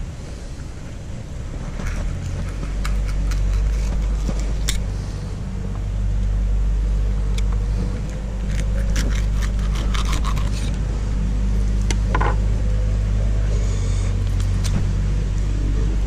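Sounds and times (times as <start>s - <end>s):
engine rumbling: 0.0s - 16.0s
knife scraping fish: 1.9s - 4.8s, 8.5s - 10.8s.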